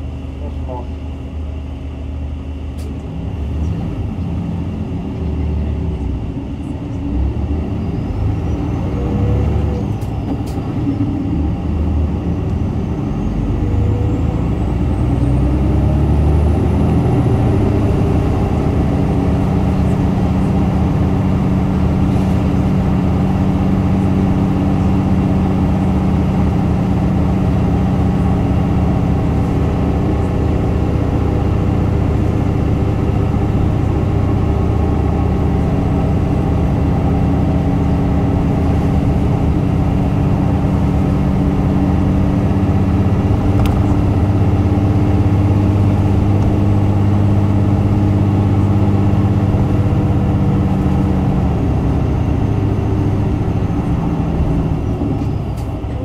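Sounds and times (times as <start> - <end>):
bus diesel engine humming: 0.0 - 56.0.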